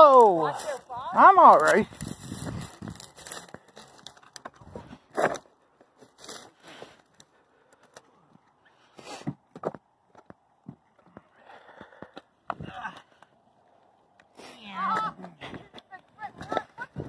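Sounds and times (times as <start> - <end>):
footsteps crunching over rocks: 0.2 - 7.2.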